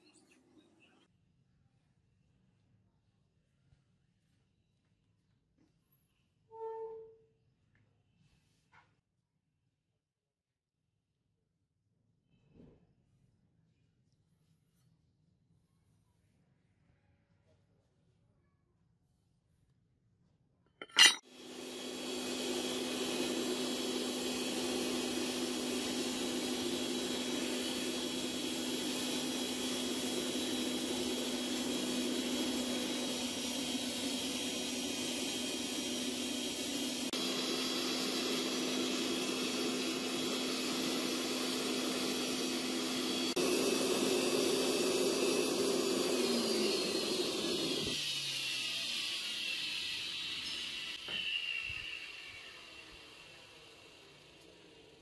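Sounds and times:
air blower rushing hum: 21.4s - 54.2s.

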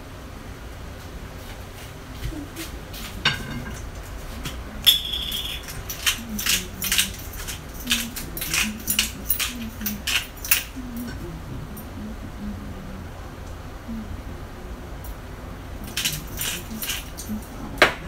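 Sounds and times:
ringing clink: 4.9s - 10.7s.

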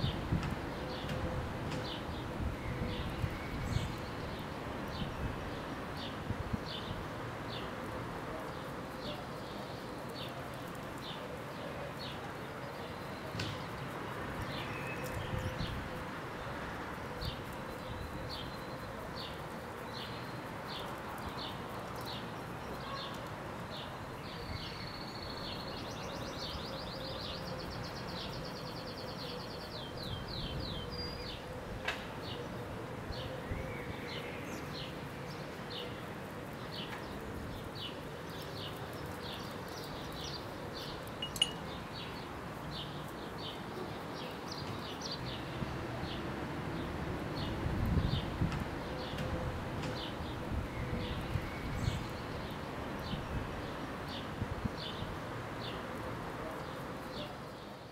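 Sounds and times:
small bird chirping: 38.4s - 42.2s.

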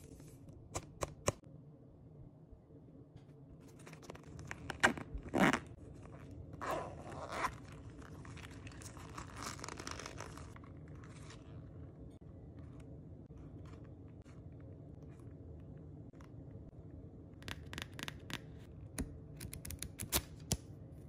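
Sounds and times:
small zipper being pulled: 4.0s - 11.4s.

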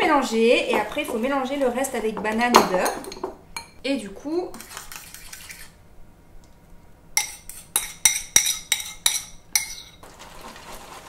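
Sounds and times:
spoon scraping a ceramic bowl: 4.5s - 5.8s, 7.2s - 10.0s.

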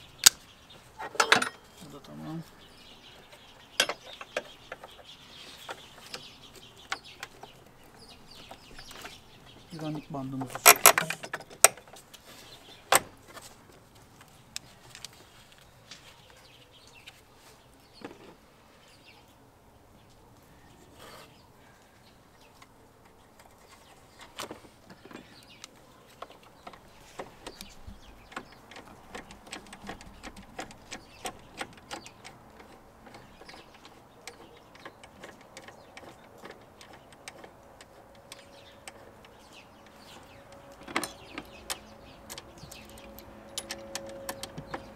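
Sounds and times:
plastic and metal clicks and knocks: 10.4s - 12.0s, 24.3s - 44.9s.

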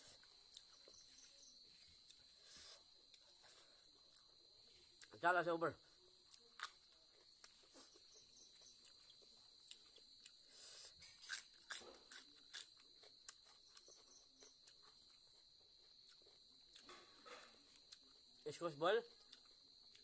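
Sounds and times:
insect chirring: 0.0s - 20.0s
chewing raw vegetables: 6.1s - 18.4s, 19.1s - 20.0s.

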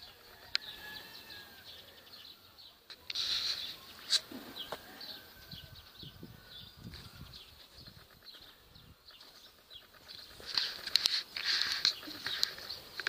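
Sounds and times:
faint birds calling: 0.0s - 13.0s
hissing rustle: 2.8s - 5.2s, 6.2s - 13.0s.

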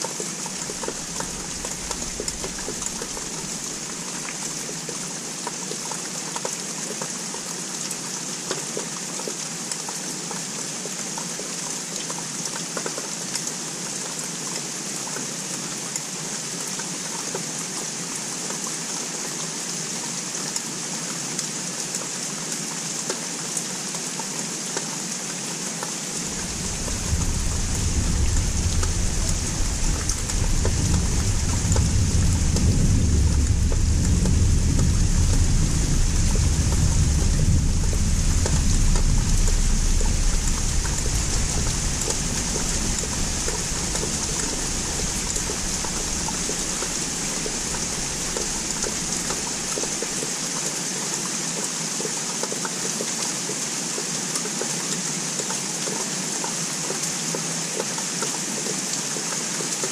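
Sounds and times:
steady rain falling: 0.0s - 59.9s
distant thunder rumble: 0.4s - 4.3s, 26.2s - 50.2s.

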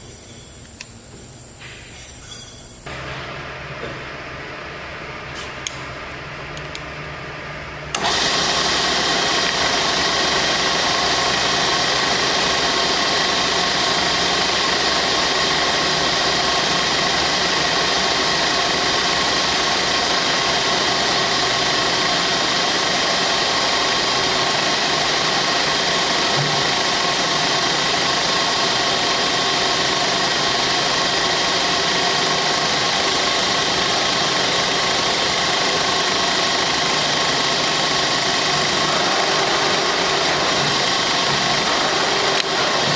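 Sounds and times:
click: 0.6s - 1.0s
milling machine spindle whining: 7.9s - 42.9s.

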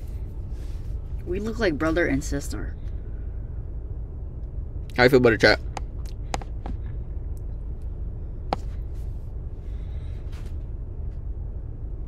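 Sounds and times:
car cabin rumble: 5.5s - 11.4s.

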